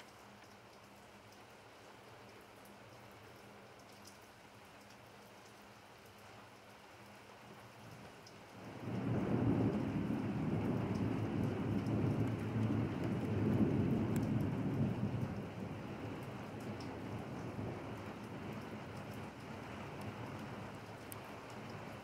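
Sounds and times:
rain on pavement: 0.0 - 22.0
thunder rumble: 8.6 - 22.0.

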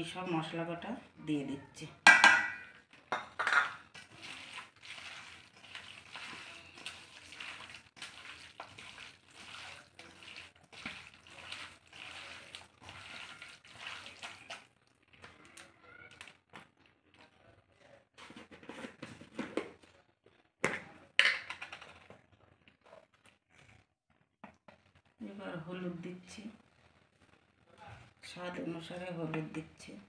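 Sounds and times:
sharp knocks on steel bowl: 2.1 - 3.8
wet squelching of hand kneading meat: 3.9 - 17.4.

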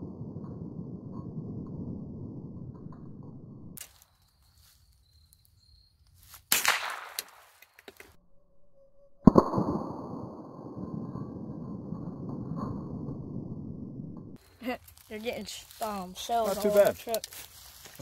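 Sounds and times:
rifle shots cracking: 6.5 - 7.6.

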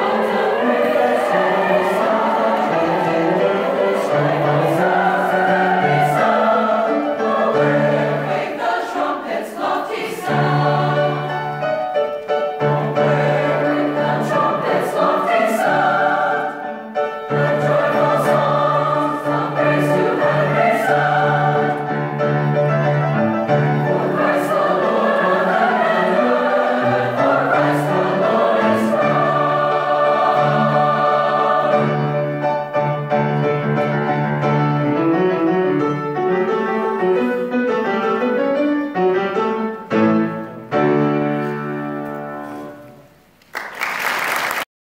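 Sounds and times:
choir singing: 0.0 - 33.1
piano accompaniment: 0.0 - 43.5
audience applause: 43.4 - 44.7.

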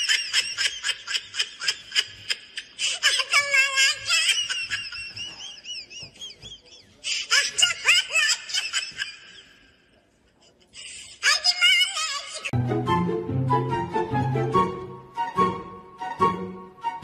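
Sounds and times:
high-pitched laughter: 0.0 - 9.7, 10.4 - 12.6.

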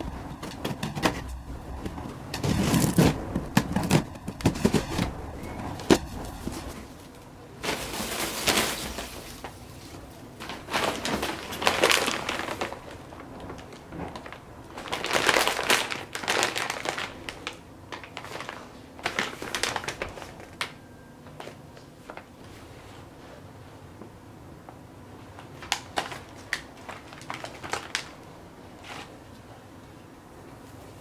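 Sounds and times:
packing paper crinkling: 0.0 - 20.8, 25.4 - 29.1
plastic bags crinkling: 0.0 - 22.4, 25.4 - 28.3.

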